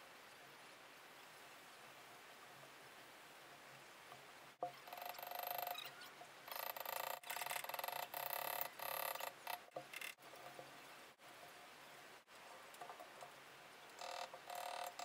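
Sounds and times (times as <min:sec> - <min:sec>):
hand tool clicking: 0:14.0 - 0:15.0
hand tool grating on metal: 0:14.0 - 0:15.0.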